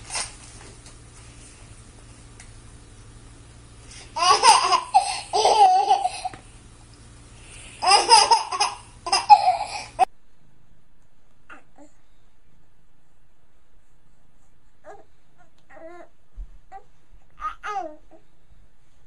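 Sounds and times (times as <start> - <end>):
faint low hum: 0.0 - 19.0
baby laughing: 4.2 - 6.4, 7.8 - 10.1.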